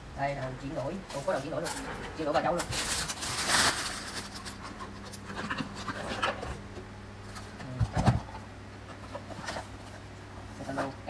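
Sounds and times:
low steady hum: 0.0s - 11.0s
plastic and cardboard rustling: 0.3s - 11.0s.

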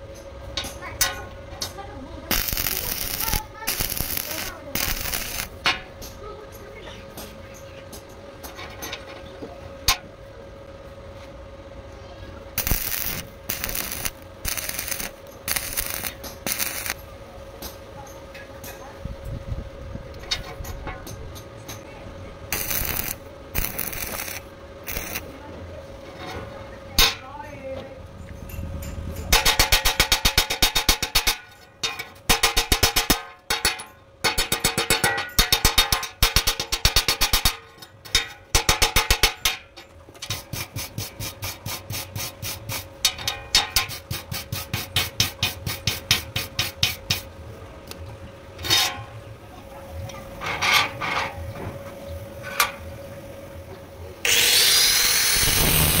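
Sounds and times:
scraping slag off steel: 2.3s - 5.6s, 12.6s - 17.0s, 22.5s - 25.2s
welding arc crackle: 2.3s - 5.6s, 12.6s - 17.0s, 22.5s - 25.3s, 29.3s - 31.4s, 54.2s - 56.0s.

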